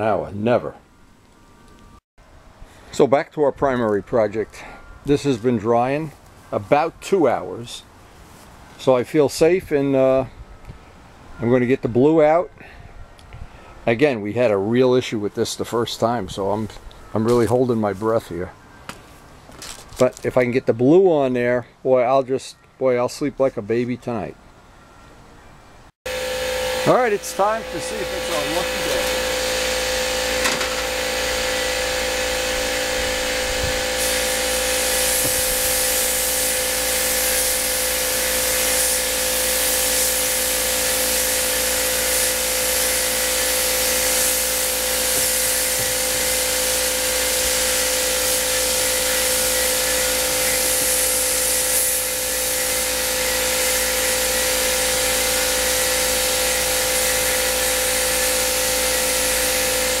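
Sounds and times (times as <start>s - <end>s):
air compressor humming: 26.1s - 60.0s
paint spray gun hissing: 26.1s - 60.0s.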